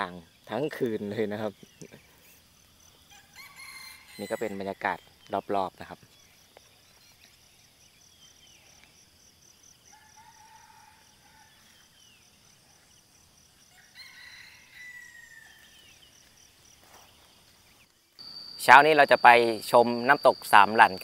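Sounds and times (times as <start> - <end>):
pulsing insect chorus: 0.0 - 21.0
distant roosters crowing: 2.8 - 5.0, 9.8 - 11.9, 13.6 - 15.8.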